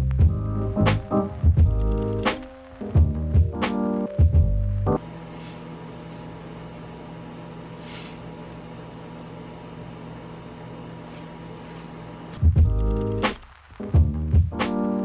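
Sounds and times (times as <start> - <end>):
background music: 0.0 - 5.0, 12.5 - 15.0
microwave oven humming: 4.1 - 13.1.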